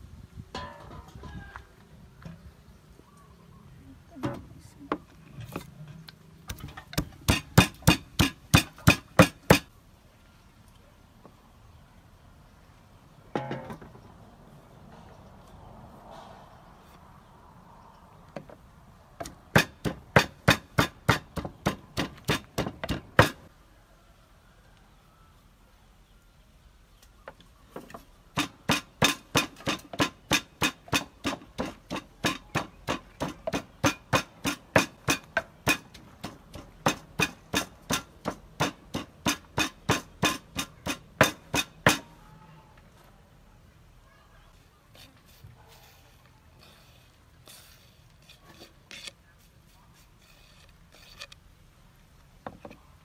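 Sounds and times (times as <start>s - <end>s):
pestle pounding in wooden mortar: 6.5s - 9.7s, 19.2s - 23.4s, 28.3s - 42.1s.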